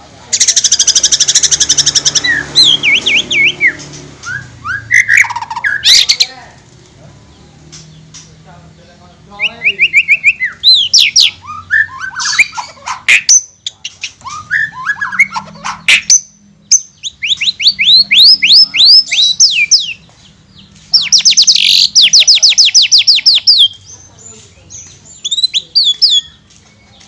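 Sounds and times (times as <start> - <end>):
bird singing chirps and whistles: 0.4 - 6.3, 9.4 - 13.5, 14.2 - 20.0, 20.9 - 23.9, 25.1 - 26.4.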